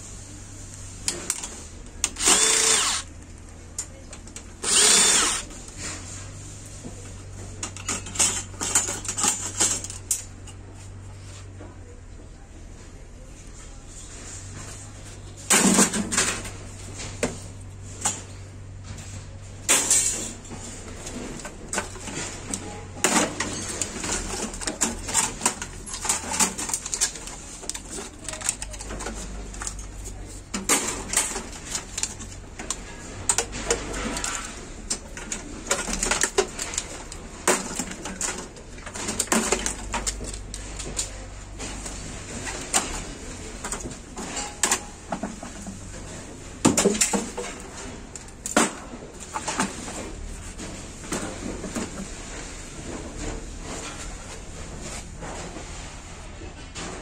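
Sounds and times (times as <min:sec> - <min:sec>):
computer parts clattering: 0:01.0 - 0:05.5, 0:07.6 - 0:10.6, 0:19.7 - 0:52.1.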